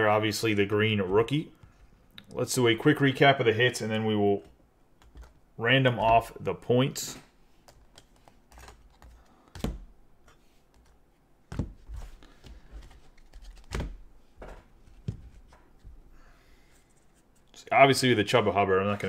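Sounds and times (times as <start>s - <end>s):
plastic cases clicking and rubbing: 7.6s - 14.0s.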